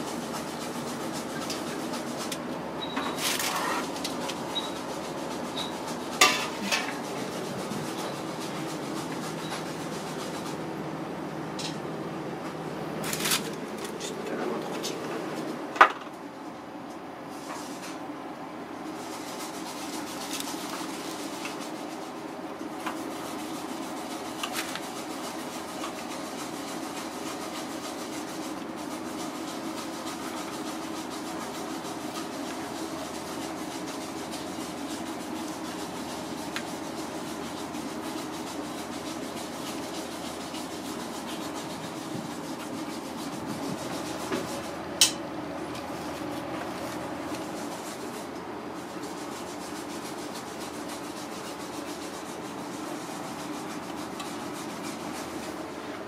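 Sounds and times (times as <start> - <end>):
steady background hum: 0.0 - 56.0
soft rubbing and rustling: 18.9 - 44.8.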